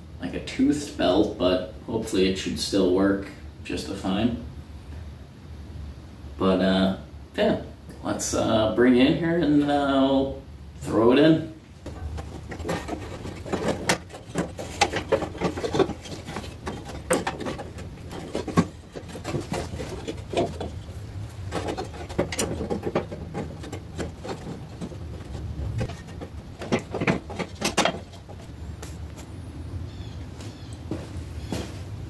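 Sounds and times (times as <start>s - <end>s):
low steady hum: 0.0s - 32.0s
clicks and knocks: 11.8s - 29.0s
rubber belt rubbing on metal: 11.9s - 29.0s.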